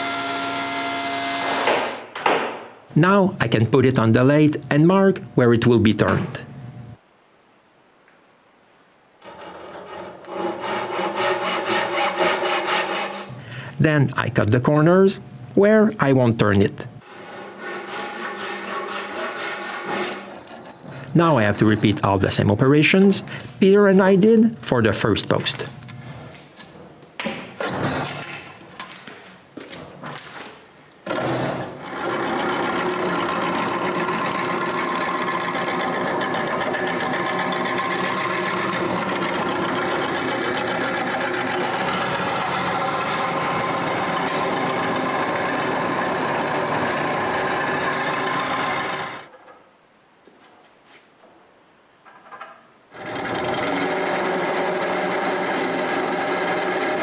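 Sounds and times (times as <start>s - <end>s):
lathe gouge cutting wood: 0.0s - 2.0s, 31.1s - 49.3s, 52.9s - 57.0s
lathe motor hum: 31.1s - 49.3s, 52.9s - 57.0s.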